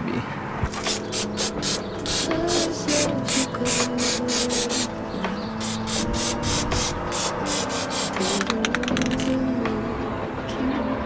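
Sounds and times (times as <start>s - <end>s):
ticking hi-hat beat: 0.9s - 4.9s, 5.6s - 8.5s.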